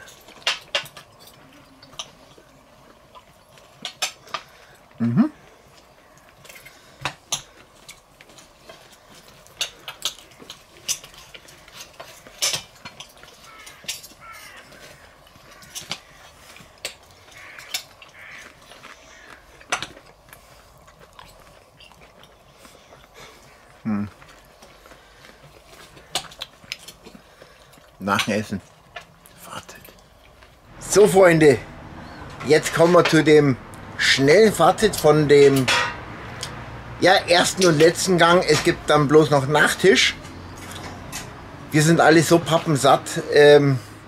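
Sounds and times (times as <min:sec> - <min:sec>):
person humming: 0:05.0 - 0:05.4.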